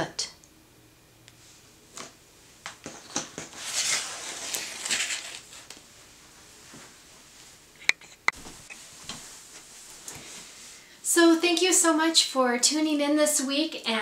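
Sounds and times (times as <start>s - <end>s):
rustle and slide of paper: 3.4s - 5.8s.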